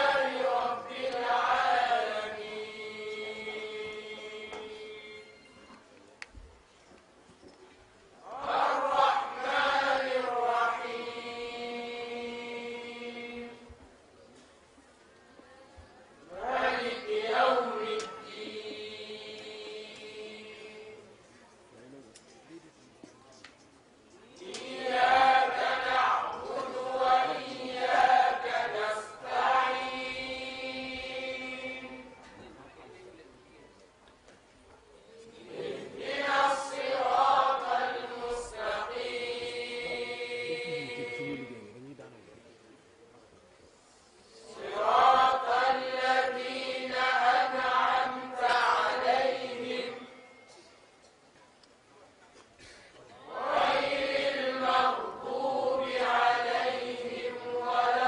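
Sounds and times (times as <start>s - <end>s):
group chanting in unison: 0.0s - 5.4s, 8.2s - 13.7s, 16.3s - 21.1s, 24.3s - 32.2s, 35.3s - 41.7s, 44.4s - 50.3s, 53.2s - 58.0s.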